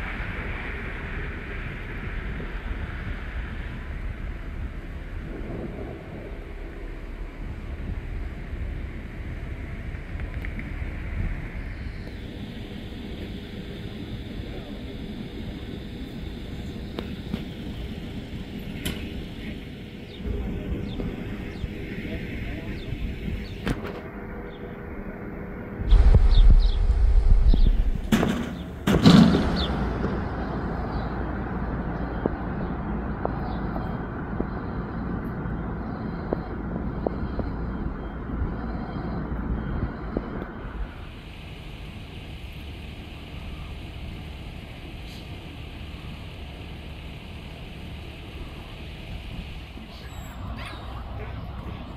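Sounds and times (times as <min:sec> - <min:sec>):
jet engines rumbling and whining: 0:00.0 - 0:51.9
loud sudden noise: 0:25.8 - 0:31.1.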